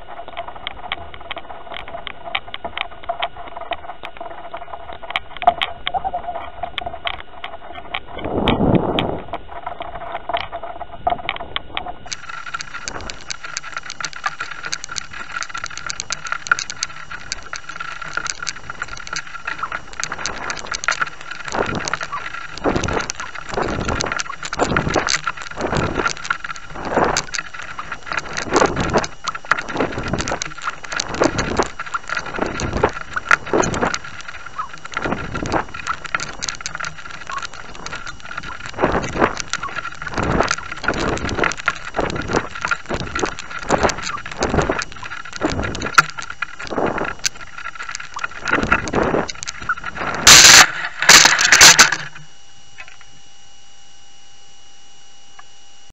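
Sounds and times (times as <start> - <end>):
faint high whine: 0.0 - 55.9
wind gusts on microphone: 7.9 - 9.6, 10.9 - 52.1.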